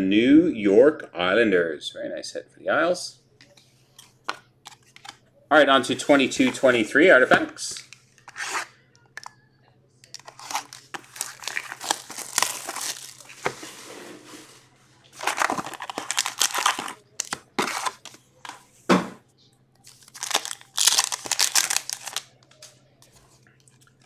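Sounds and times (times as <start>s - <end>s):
plastic wrappers crinkling and tearing: 10.1s - 13.6s, 15.1s - 18.6s, 19.8s - 22.7s.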